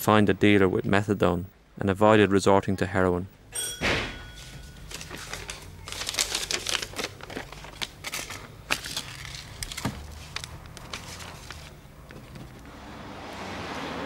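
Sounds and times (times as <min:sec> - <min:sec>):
low steady hum: 0:00.0 - 0:13.0
paper rustling: 0:04.4 - 0:12.7.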